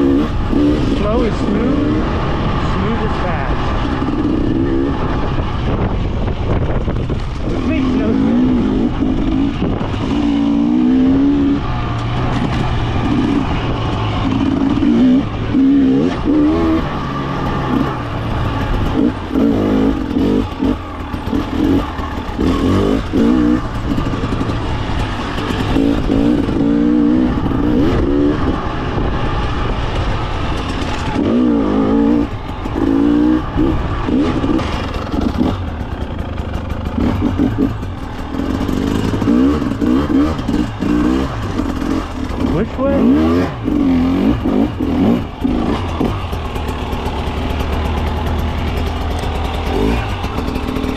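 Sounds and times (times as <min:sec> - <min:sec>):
dirt bike engine revving: 0:00.0 - 0:50.9.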